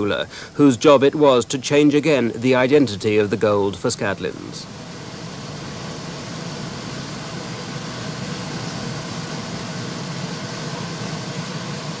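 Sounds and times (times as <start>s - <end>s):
furnace roaring: 4.6s - 12.0s
low hum: 4.6s - 12.0s.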